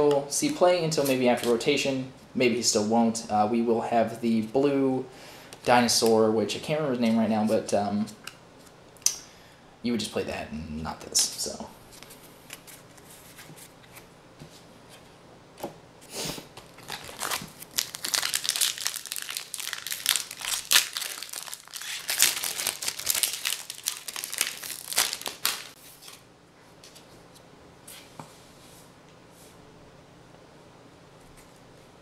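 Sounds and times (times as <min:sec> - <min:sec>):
foil wrapper crinkling and tearing: 0:16.6 - 0:25.8.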